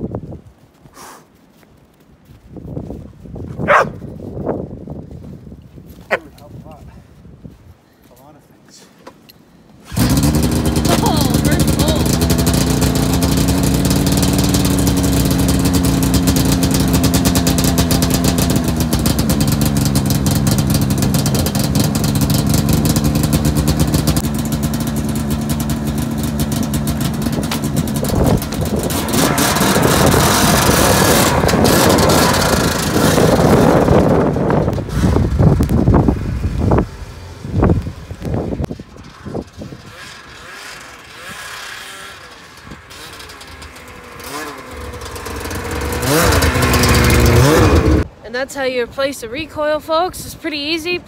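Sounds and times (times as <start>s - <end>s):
snowmobile track noise: 9.8s - 51.0s
snowmobile engine running: 9.9s - 48.1s.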